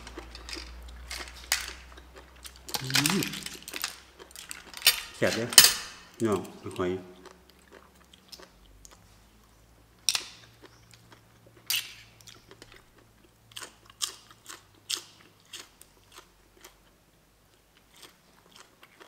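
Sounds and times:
chewing crisp food: 0.0 - 4.9, 6.4 - 19.0.

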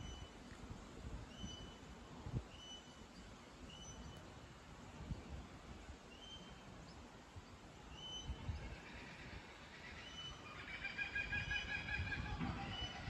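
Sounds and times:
birds calling: 8.0 - 13.0.

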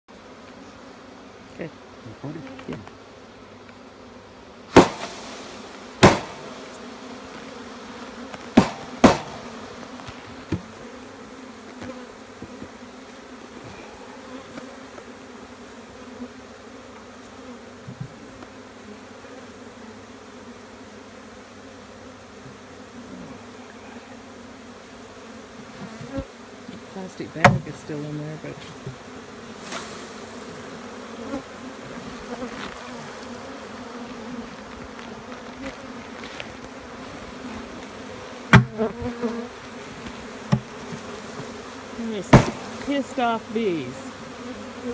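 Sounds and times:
bee swarm buzzing: 0.1 - 44.9
sharp knocks: 4.8 - 5.2, 6.0 - 6.7, 8.6 - 9.6, 27.4 - 27.7, 38.5 - 38.8, 40.5 - 40.7, 42.2 - 42.9.

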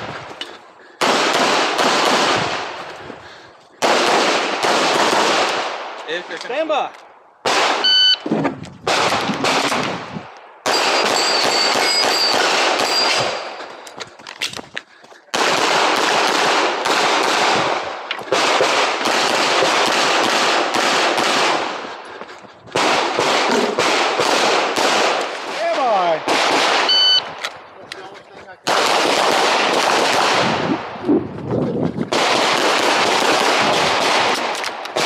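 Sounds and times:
pistol shots in rapid strings: 28.6 - 30.6, 32.1 - 35.0.

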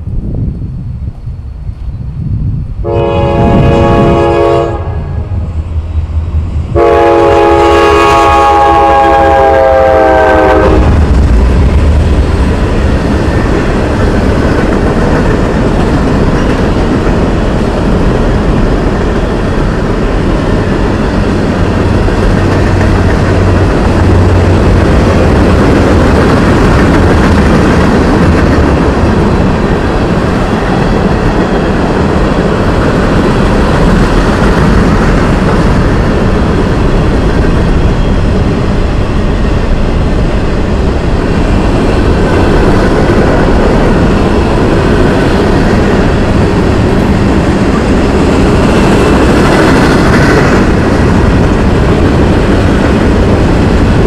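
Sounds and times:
freight train rolling on rails: 0.0 - 54.0
locomotive air horn blasts: 2.8 - 5.4, 6.8 - 11.0.

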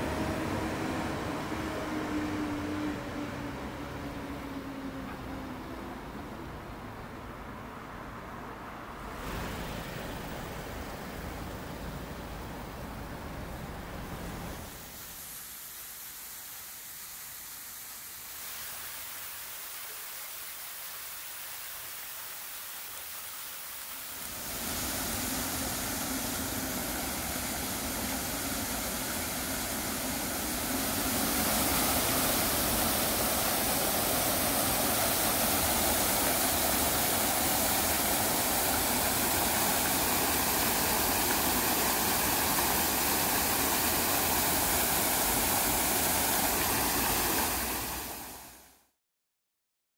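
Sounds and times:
waterfall rushing into pools: 9.0 - 48.9.

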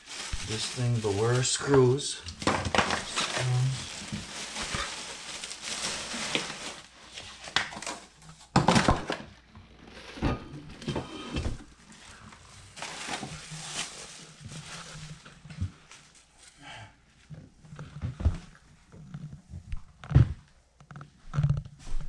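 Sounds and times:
plastic bags crinkling: 0.0 - 9.1, 11.4 - 16.6
knocks of parts and cardboard: 8.5 - 9.3.

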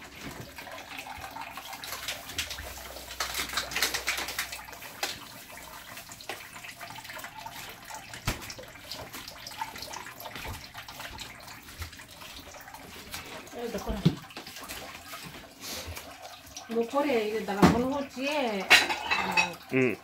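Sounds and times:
kitchen clatter and rustling: 0.0 - 6.5, 7.5 - 19.6.

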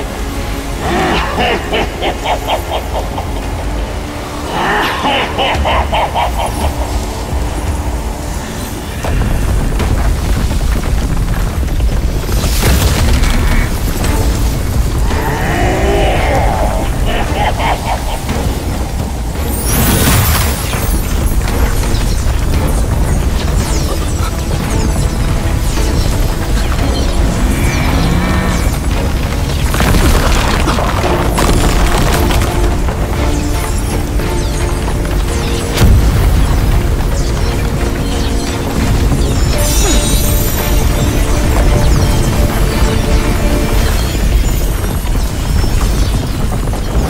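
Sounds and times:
dramatic music: 0.0 - 47.0
deep booming effects: 35.7 - 38.2.

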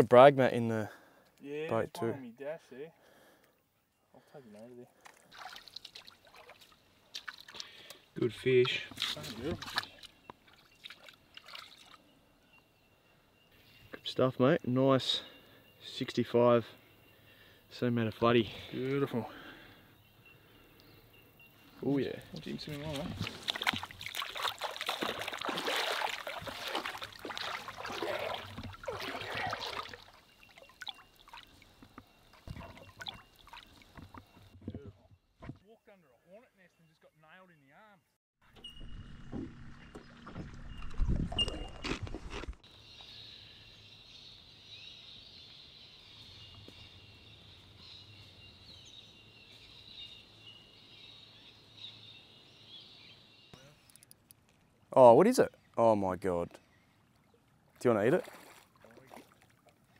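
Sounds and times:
water splashing and trickling: 4.5 - 12.2, 21.8 - 35.6, 38.6 - 43.2, 53.9 - 59.9
bird chirps: 7.7 - 23.1, 27.8 - 34.6, 35.6 - 41.9, 42.6 - 54.2.

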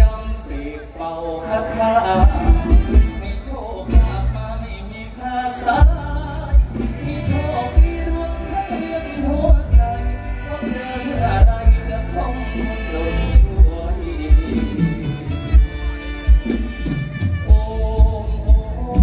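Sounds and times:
person singing over amplified band: 0.0 - 19.0
bass drum thumping: 2.2 - 4.4, 5.8 - 8.5, 9.5 - 10.4, 11.2 - 12.2, 13.3 - 19.0.

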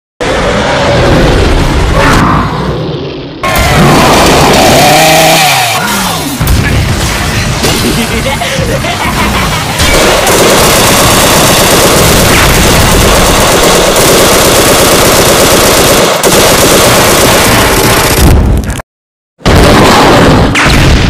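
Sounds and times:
rapid machine-gun fire: 3.6 - 5.4, 9.1 - 18.6, 19.4 - 21.0.

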